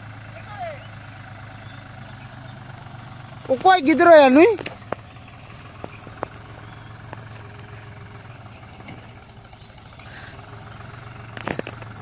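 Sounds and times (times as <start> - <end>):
tractor diesel engine humming: 0.0 - 12.0.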